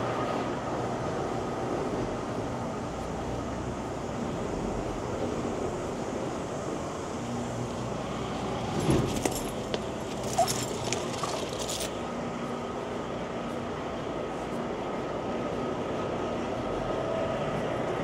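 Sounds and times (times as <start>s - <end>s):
steady mechanical hum: 0.0s - 18.0s
metal chain clinking and rattling: 8.7s - 12.1s.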